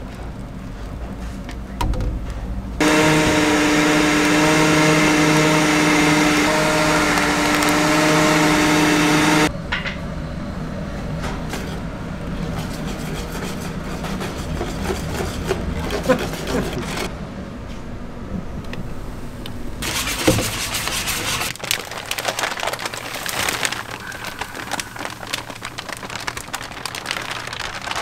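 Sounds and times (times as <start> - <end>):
electric blender motor running: 2.8 - 9.5.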